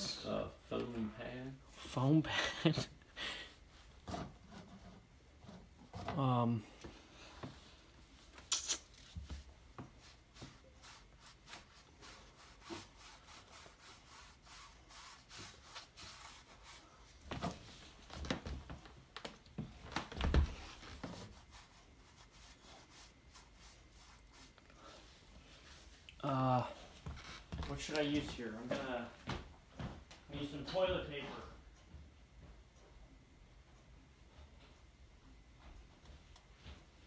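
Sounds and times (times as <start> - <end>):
foam pad scrubbing canvas: 10.0 - 17.0.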